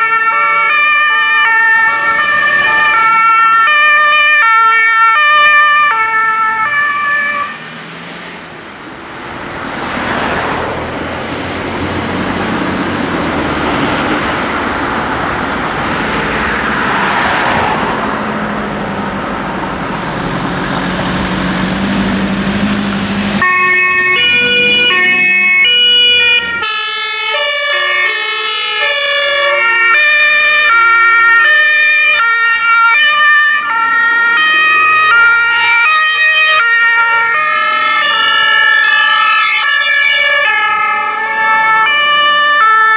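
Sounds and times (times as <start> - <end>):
two-tone sirens: 0.0 - 10.6, 11.2 - 42.9
ambulance engine and tyre noise: 0.0 - 42.9.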